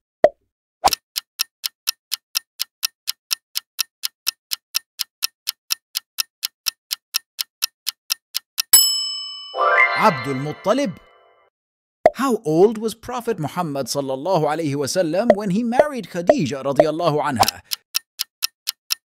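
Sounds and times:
clock ticking: 0:00.8 - 0:08.8, 0:13.4 - 0:19.0.

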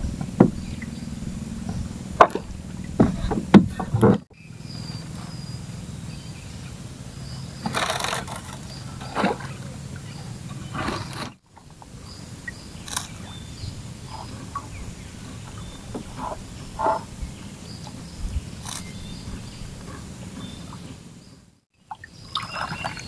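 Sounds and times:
fishing gear knocking in boat: 0:00.0 - 0:04.3
steady low rumble: 0:00.0 - 0:21.3.

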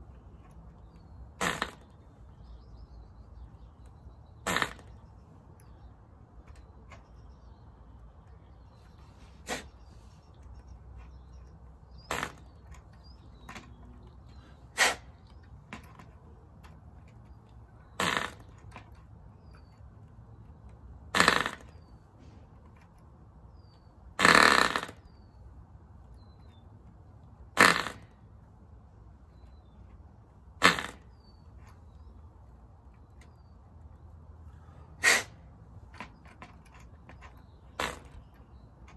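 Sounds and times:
small engine pops and sputters: 0:00.9 - 0:02.0, 0:04.4 - 0:05.0, 0:11.9 - 0:16.1, 0:17.8 - 0:19.7, 0:21.1 - 0:21.9, 0:24.2 - 0:25.2, 0:27.6 - 0:28.2, 0:30.6 - 0:31.3, 0:35.9 - 0:38.9.

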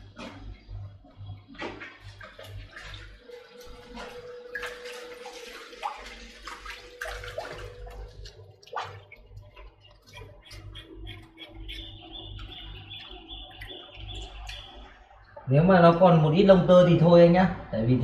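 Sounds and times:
faint steady hum: 0:00.0 - 0:18.0
water splashing in plastic basin: 0:01.5 - 0:10.8.

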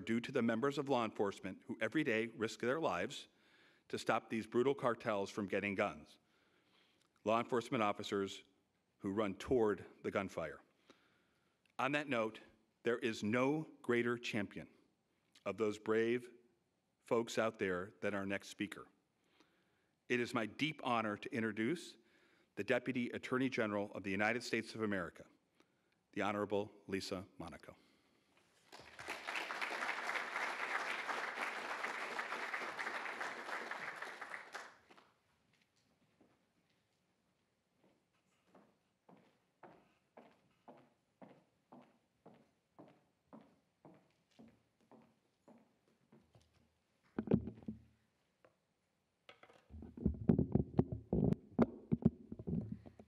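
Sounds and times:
audience applauding: 0:28.7 - 0:35.0
microphone bumping and rubbing: 0:47.1 - 0:47.9, 0:49.4 - 0:53.0
microphone handling knocks: 0:47.2 - 0:47.9, 0:49.7 - 0:53.0.

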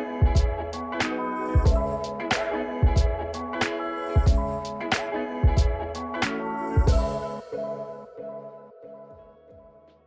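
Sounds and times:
sustained chords with drum beat: 0:00.2 - 0:07.9.

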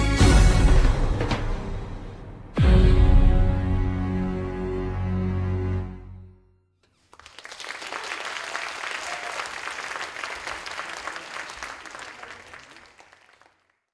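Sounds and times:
music: 0:00.0 - 0:06.8
audience applause: 0:06.9 - 0:13.9.

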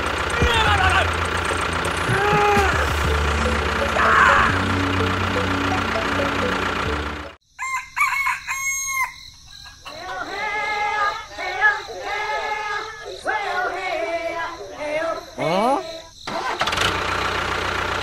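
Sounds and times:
rooster crowing: 0:07.5 - 0:11.2.

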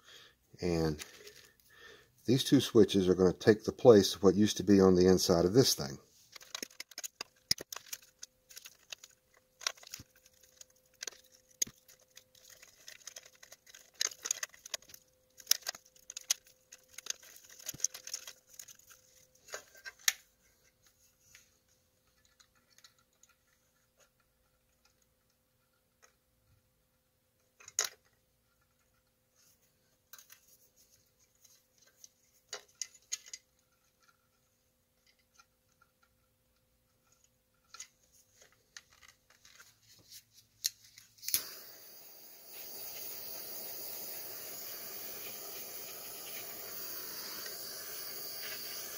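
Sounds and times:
faint steady hum: 0:40.6 - 0:48.9.

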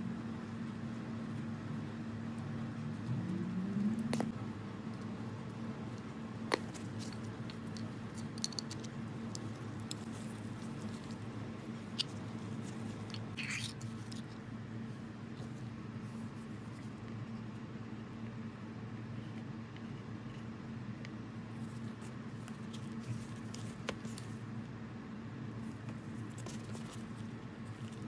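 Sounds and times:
steady low hum: 0:00.0 - 0:28.0
metal parts clicking and tapping: 0:06.9 - 0:10.0.

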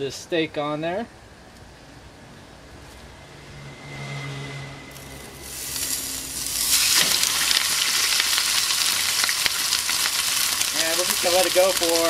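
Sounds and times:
steak sizzling in frying pan: 0:05.4 - 0:12.0.

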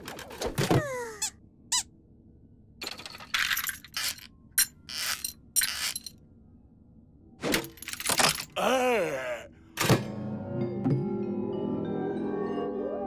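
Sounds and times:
cartoon squeaks falling in pitch: 0:00.7 - 0:01.9.

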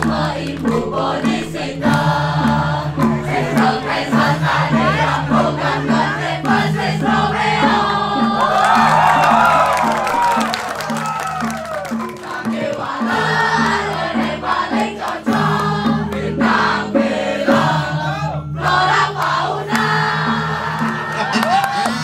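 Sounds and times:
women singing: 0:00.0 - 0:10.6, 0:11.4 - 0:22.0
gamelan music: 0:00.0 - 0:22.0
audience crowd: 0:08.4 - 0:13.0.

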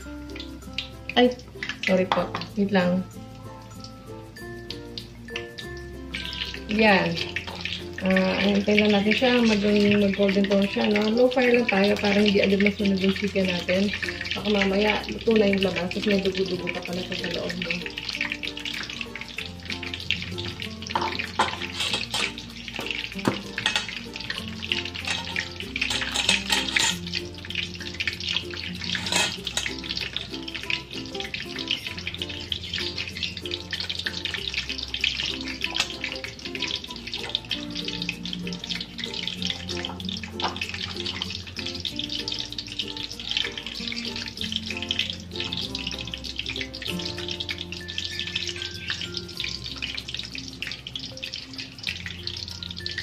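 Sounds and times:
chicken deep-frying in oil: 0:00.0 - 0:53.0.

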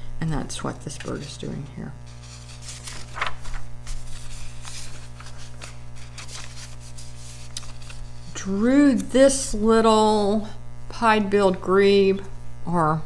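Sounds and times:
low electrical hum: 0:00.0 - 0:13.0
paper pages rustling: 0:02.0 - 0:08.4.

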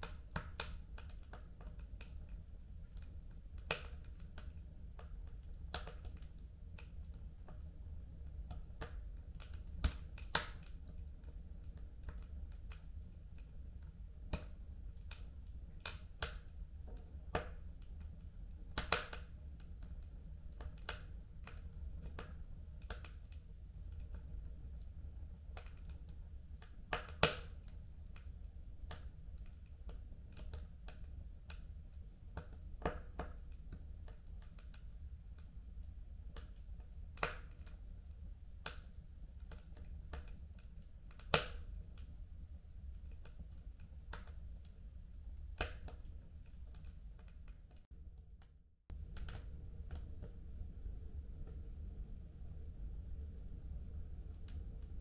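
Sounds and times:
wood fire crackling and popping: 0:00.0 - 0:47.9, 0:48.8 - 0:51.8
low steady fire rumble: 0:00.0 - 0:55.0.

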